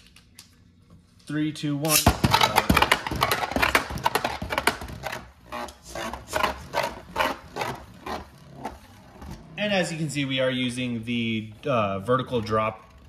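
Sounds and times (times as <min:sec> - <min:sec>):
spinning top clattering in plastic stadium: 0:01.9 - 0:05.3.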